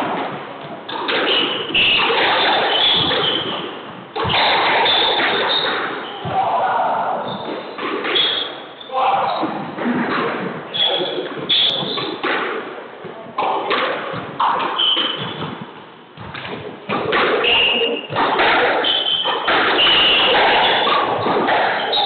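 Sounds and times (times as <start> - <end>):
racket striking ball: 0.0 - 6.6, 13.3 - 22.0
squash ball thudding off walls: 0.0 - 8.5, 9.4 - 22.0
shoes squeaking on wooden floor: 1.1 - 6.4, 7.2 - 9.5, 10.7 - 12.2, 14.8 - 15.6, 17.4 - 22.0.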